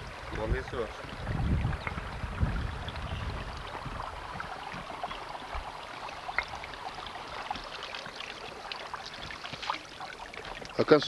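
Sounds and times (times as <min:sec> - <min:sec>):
wind gust on microphone: 0:00.0 - 0:05.7
spring water trickling over stones: 0:00.0 - 0:11.0.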